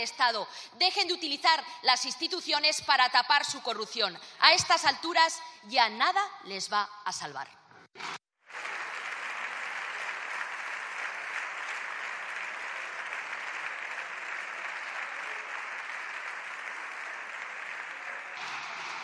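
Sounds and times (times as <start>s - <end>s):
crowd applauding: 8.4s - 19.0s.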